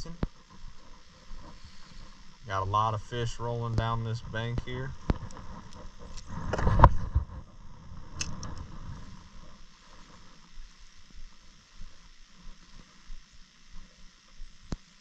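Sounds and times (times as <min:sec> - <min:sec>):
microphone handling thumps: 0:03.6 - 0:09.2
sharp click: 0:08.2 - 0:08.6.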